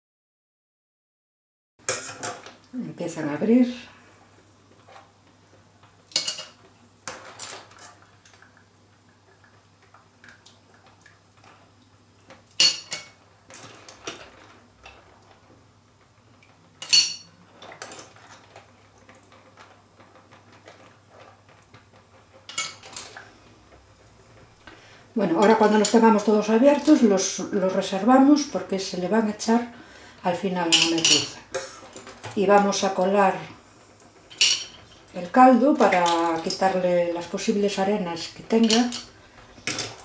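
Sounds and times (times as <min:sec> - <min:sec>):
tongs clinking on steel pot: 0:38.5 - 0:39.1.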